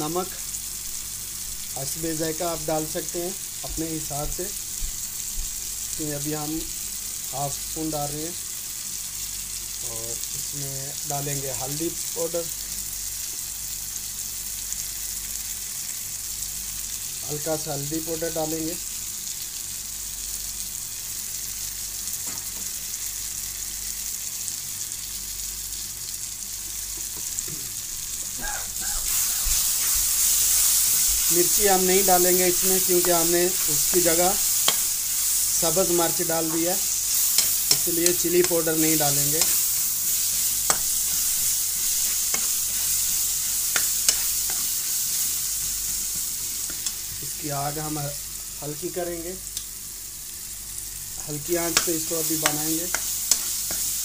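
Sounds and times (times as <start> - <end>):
food sizzling in hot oil: 0.0 - 54.0
metal spoon stirring in pan: 29.0 - 47.0, 51.6 - 54.0.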